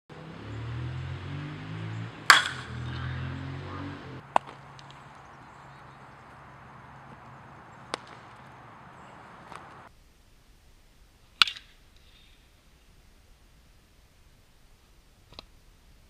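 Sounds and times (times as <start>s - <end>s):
metal bat hitting ball: 1.7s - 9.8s.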